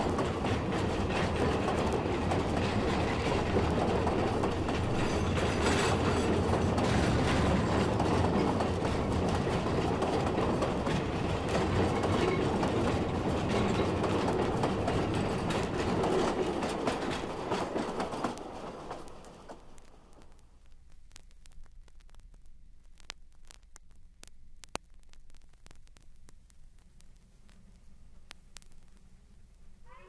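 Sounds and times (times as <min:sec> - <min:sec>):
steam train wheels clattering: 0:00.0 - 0:19.7.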